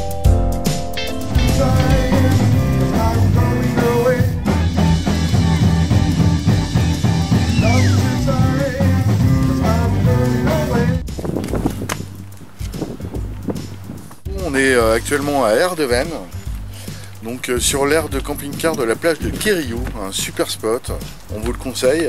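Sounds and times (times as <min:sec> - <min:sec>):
electric keyboard: 0:00.0 - 0:08.5
bass guitar: 0:00.0 - 0:22.0
drums: 0:00.0 - 0:22.0
electric guitar: 0:01.0 - 0:11.0.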